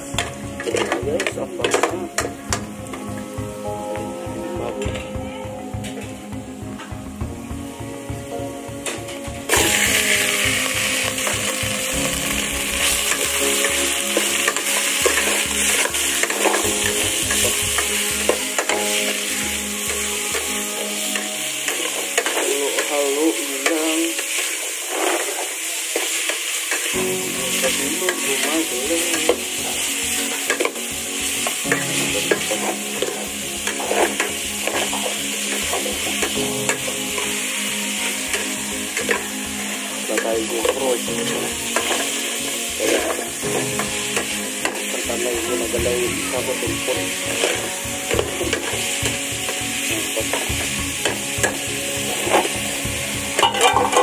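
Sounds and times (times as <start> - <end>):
meat sizzling in hot oil: 0.0 - 4.1, 4.8 - 54.0
metal ladle scraping pot: 53.4 - 54.0.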